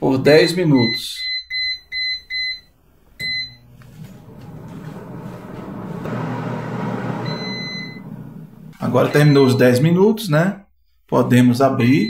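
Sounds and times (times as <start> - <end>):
touch panel beeps: 3.2 - 3.7, 7.2 - 8.1
oven fan whirring: 3.2 - 9.1.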